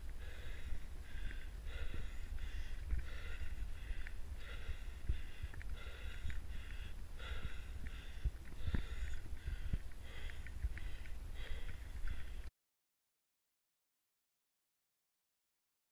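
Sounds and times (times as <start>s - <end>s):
wind buffeting microphone: 0.0s - 12.4s
person breathing heavily: 0.0s - 12.5s.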